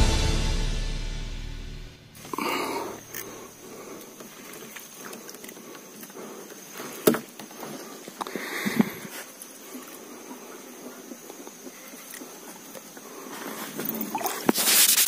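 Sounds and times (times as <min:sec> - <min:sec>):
sharp knock: 0:00.0 - 0:02.2
fishing reel ticking: 0:02.6 - 0:06.7.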